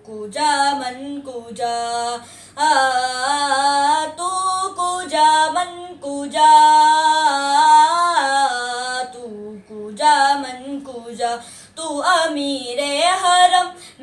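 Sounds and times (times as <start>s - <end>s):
boy singing unaccompanied: 0.0s - 14.0s
breaths: 2.2s - 2.6s, 11.4s - 11.8s, 13.8s - 14.0s.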